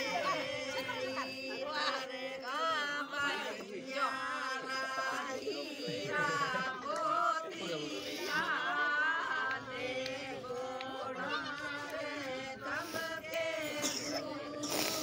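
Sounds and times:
voices chanting and singing: 0.0 - 15.0.

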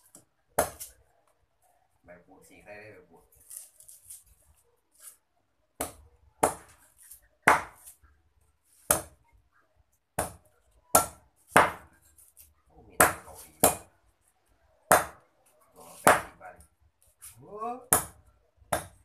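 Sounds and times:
cleaver chopping on wooden block: 0.1 - 0.9, 5.8 - 6.8, 7.4 - 7.9, 8.8 - 9.2, 10.2 - 11.9, 13.0 - 13.9, 14.9 - 15.2, 15.9 - 16.4, 17.9 - 19.0.

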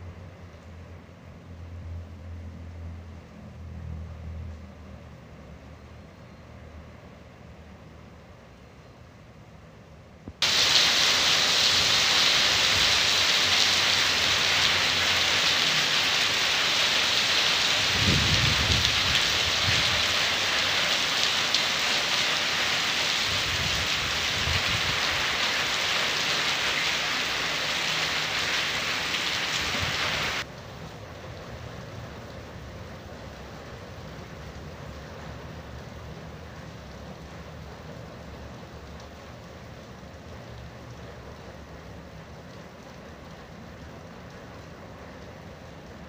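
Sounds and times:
heavy rain on paving: 10.3 - 46.0
low thunder rumble: 17.9 - 20.1.

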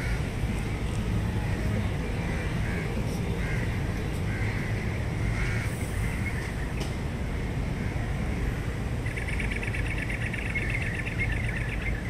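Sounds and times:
birds calling: 0.0 - 12.0
low rumble of city traffic: 0.0 - 12.0.

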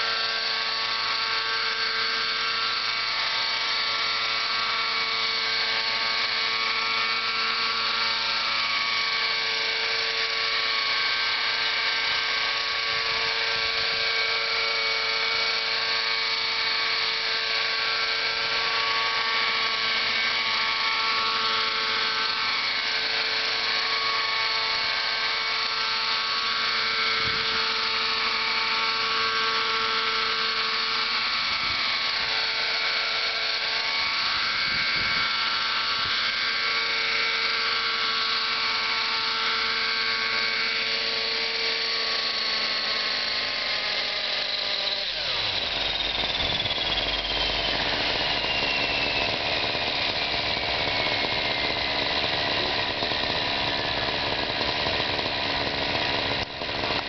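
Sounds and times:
model helicopter engine buzzing: 0.0 - 57.0.

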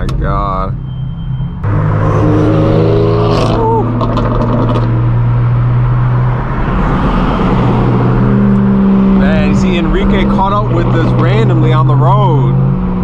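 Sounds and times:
car engine exhaust drone: 0.0 - 13.0.

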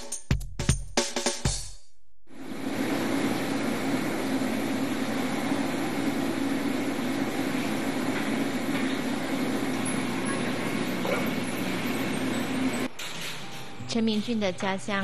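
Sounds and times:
machine drone: 2.3 - 13.9.

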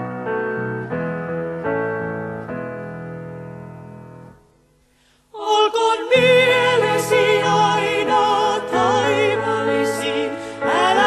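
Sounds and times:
women singing gospel with vibrato: 5.4 - 11.0.

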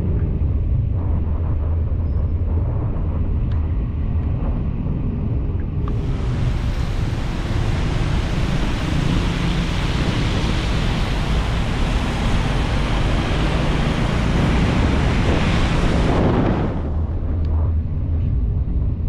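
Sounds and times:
car driving rumble: 5.2 - 19.0
heavy rain and tyre spray: 5.9 - 17.5.

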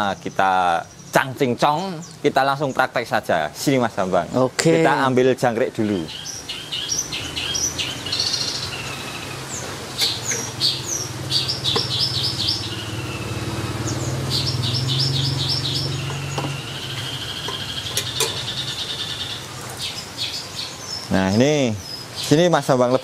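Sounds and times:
songbirds chirping: 0.0 - 23.0
vehicle engine drone passing: 6.4 - 20.2
light knocks of pot and bucket: 16.0 - 16.6, 17.4 - 18.5.

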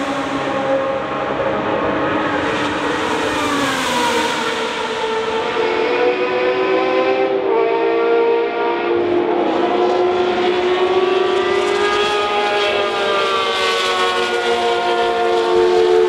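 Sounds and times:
race car engine driving past: 0.0 - 7.5.

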